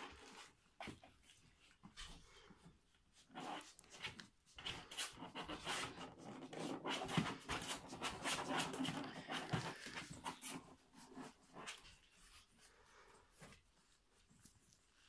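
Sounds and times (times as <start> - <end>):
paws scratching plastic dog bed: 3.2 - 12.7.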